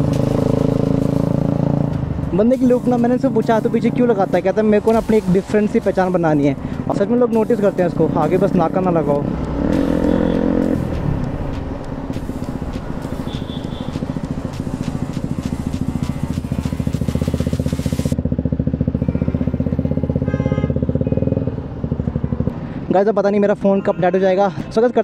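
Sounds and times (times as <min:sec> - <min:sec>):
motorcycle engine idling: 0:05.7 - 0:22.6.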